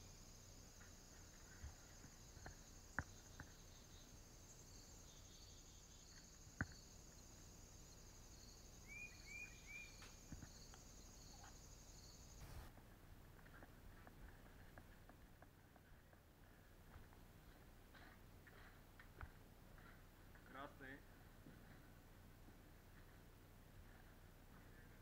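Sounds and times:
faint high-pitched whine: 0.0 - 25.0
bird chirping: 0.9 - 12.6.

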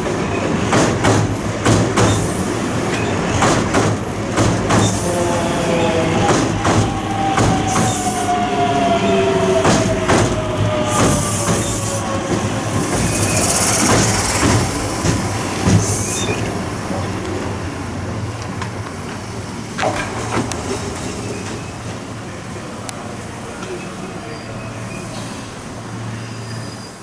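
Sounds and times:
train wheels clicking over rail joints: 0.3 - 5.0, 9.6 - 17.4
high wheel squeal: 10.5 - 16.5.

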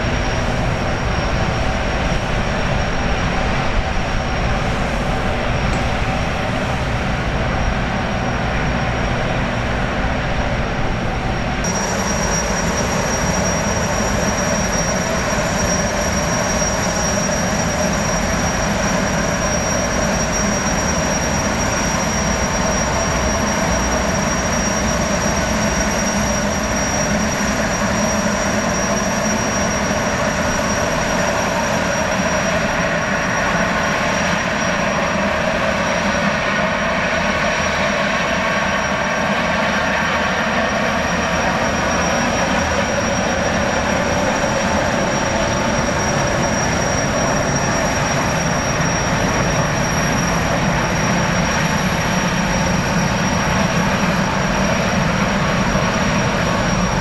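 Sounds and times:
turbine engine rushing whine: 0.0 - 57.0.

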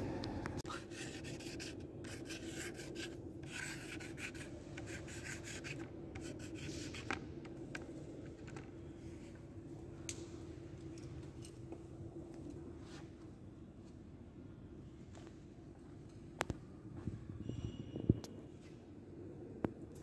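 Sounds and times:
low hum: 0.0 - 0.7
marker scratching on sign: 0.7 - 7.2.

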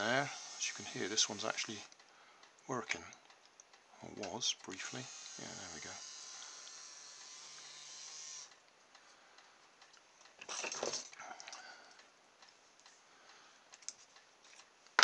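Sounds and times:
electric toothbrush buzzing: 0.0 - 1.7, 4.8 - 8.5.

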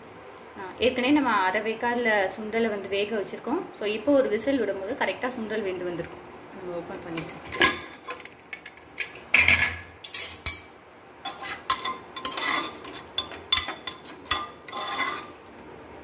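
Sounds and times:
spatula scraping and clinking pot: 7.5 - 15.5.

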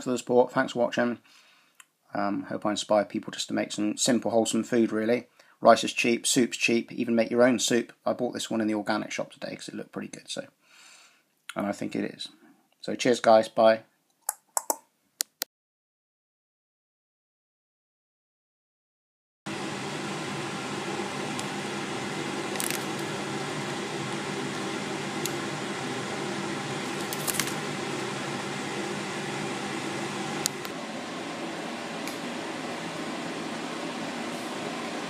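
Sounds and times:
steady background hum: 19.6 - 35.0
plastic wrapper crinkling: 22.5 - 23.0, 26.9 - 27.6.

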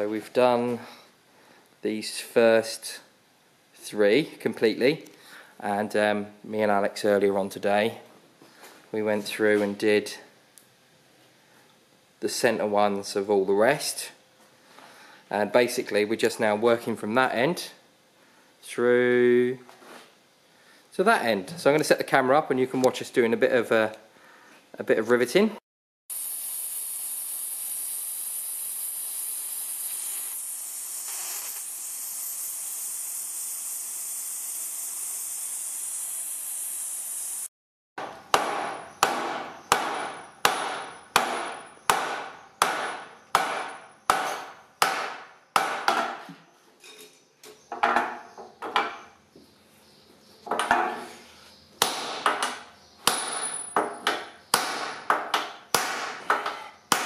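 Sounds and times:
gas torch hissing: 26.1 - 37.5
hammer striking metal: 38.0 - 46.2, 51.8 - 57.0.

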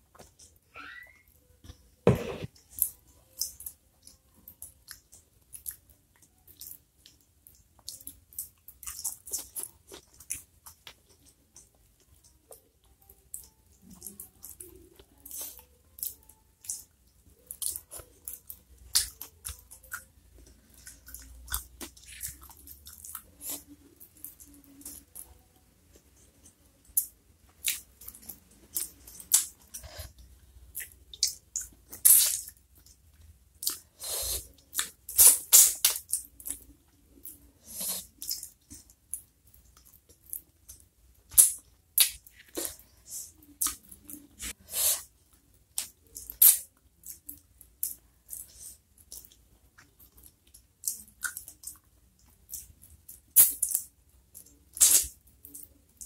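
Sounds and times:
person chewing: 2.1 - 12.6, 13.3 - 25.4, 26.0 - 56.0
food crunching: 2.4 - 12.6, 13.3 - 25.4
lip smacks and mouth clicks: 34.7 - 44.6, 45.8 - 56.0.

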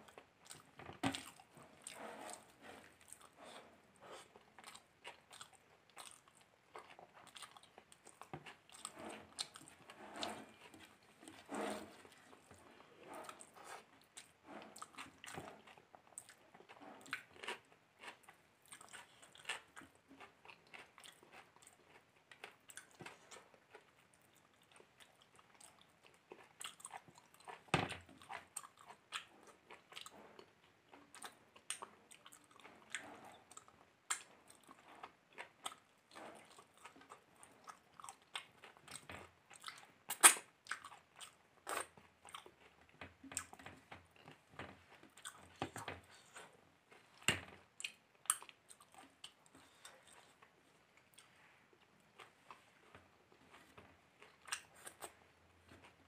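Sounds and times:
person chewing and crunching: 0.0 - 56.0.

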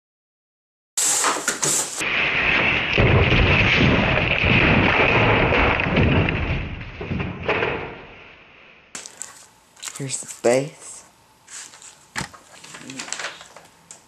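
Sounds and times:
boxed monitor crashing on floor: 1.0 - 8.4.

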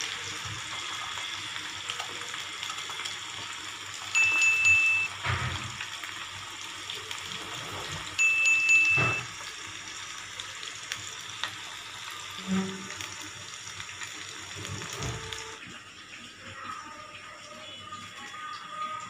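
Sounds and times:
fish sizzling in hot oil: 0.0 - 16.7
high chime tone: 4.1 - 5.2, 8.2 - 9.3.

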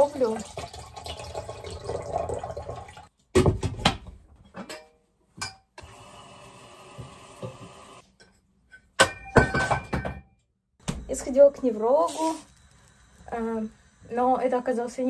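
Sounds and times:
tap water running into sink: 0.0 - 3.1.

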